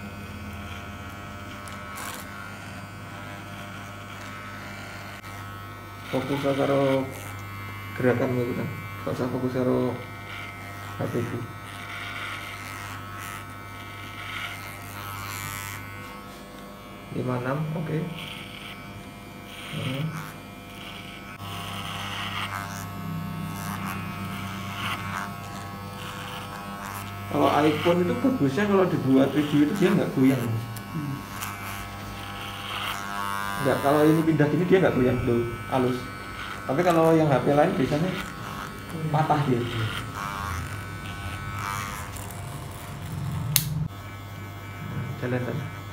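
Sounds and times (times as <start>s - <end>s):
electric hair clipper humming: 0.0s - 45.9s
clipper hiss through hair: 43.5s - 43.8s.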